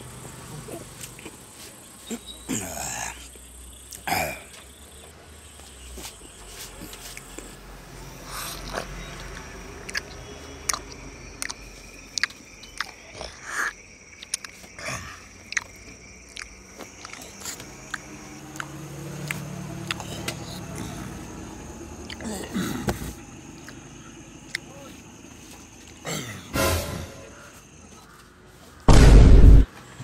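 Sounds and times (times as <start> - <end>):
person chewing and smacking lips: 8.5 - 21.0.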